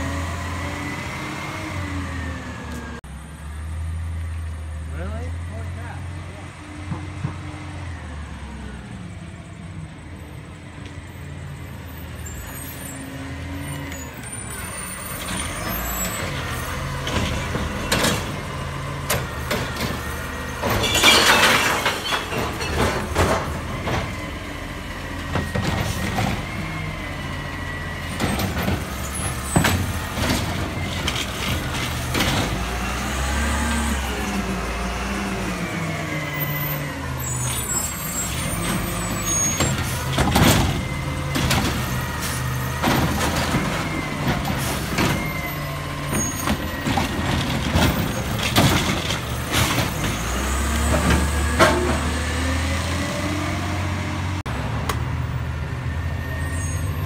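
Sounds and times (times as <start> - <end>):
garbage truck diesel engine running: 0.0 - 57.0.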